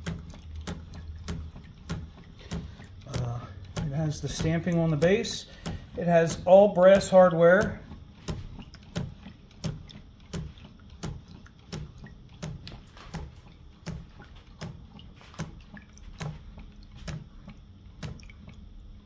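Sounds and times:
water trickling into barrel: 0:00.0 - 0:19.0
hot air engine soft knocking: 0:01.3 - 0:14.2.

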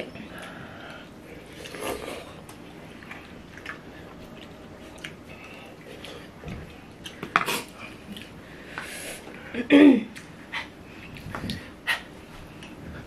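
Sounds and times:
people slurping noodles: 0:01.4 - 0:02.4.

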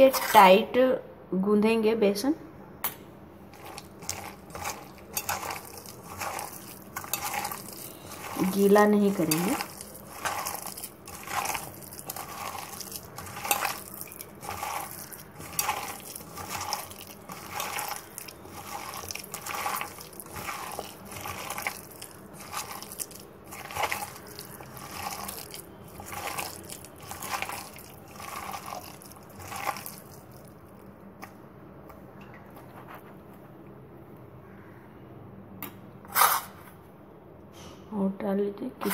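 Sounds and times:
hand squelching wet batter: 0:03.5 - 0:31.4.

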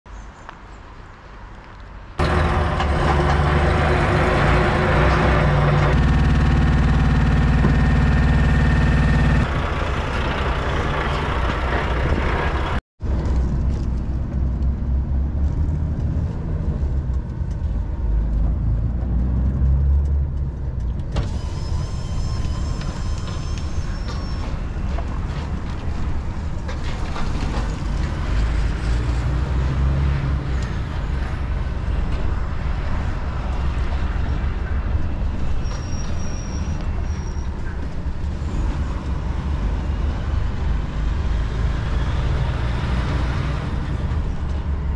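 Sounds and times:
truck diesel engine rumbling: 0:02.2 - 0:44.9.

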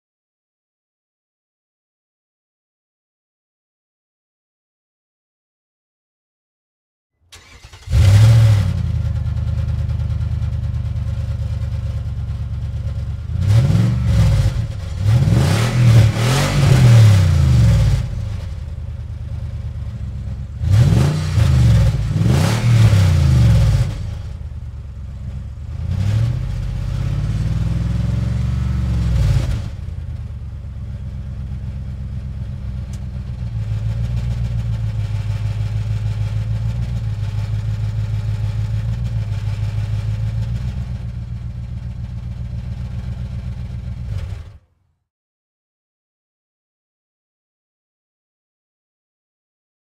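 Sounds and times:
car engine idling and revving: 0:07.3 - 0:44.6.

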